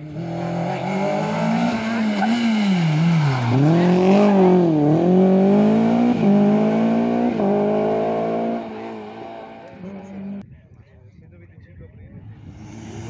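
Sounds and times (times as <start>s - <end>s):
rally car engine revving: 0.0s - 10.4s.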